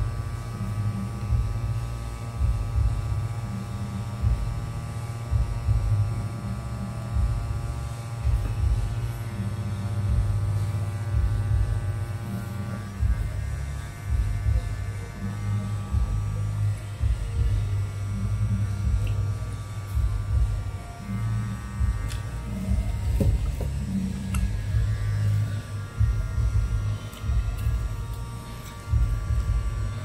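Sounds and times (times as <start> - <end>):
electrical hum: 0.0 - 30.0.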